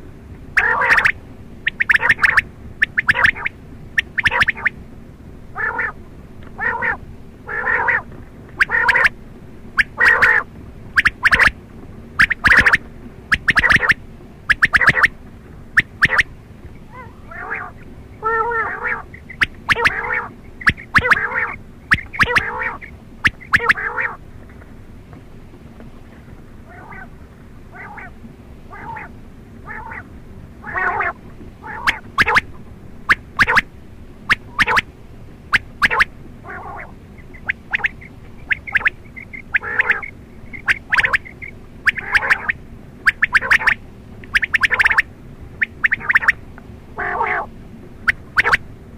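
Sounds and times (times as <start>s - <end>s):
quail calling: 0.5s - 4.8s, 5.4s - 24.2s, 26.6s - 27.1s, 27.7s - 48.7s.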